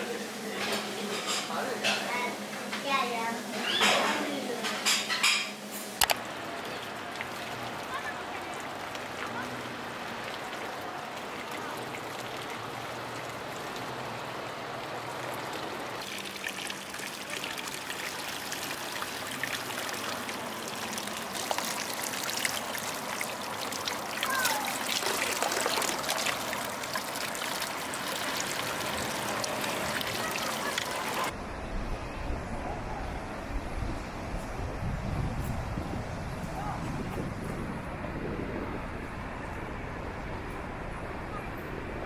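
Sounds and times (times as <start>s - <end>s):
water trickling into pool: 6.0s - 31.4s
water splashing from ladle: 16.0s - 31.3s.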